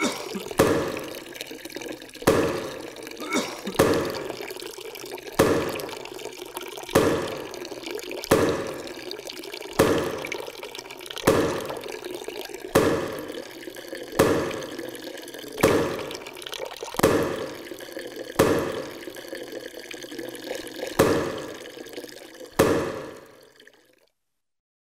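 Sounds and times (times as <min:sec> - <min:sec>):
water running: 0:00.0 - 0:23.9
wet laundry slapping surface: 0:00.6 - 0:01.0, 0:02.3 - 0:02.8, 0:05.4 - 0:05.8, 0:07.0 - 0:07.4, 0:09.8 - 0:10.3, 0:11.3 - 0:11.7, 0:12.8 - 0:13.2, 0:14.2 - 0:14.7, 0:15.6 - 0:16.2, 0:17.0 - 0:17.5, 0:18.4 - 0:18.9, 0:21.0 - 0:21.5, 0:22.6 - 0:23.1.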